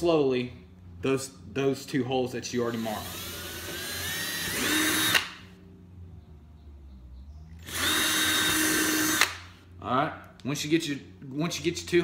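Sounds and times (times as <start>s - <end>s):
electric drill whining: 2.7s - 5.4s, 7.6s - 9.5s.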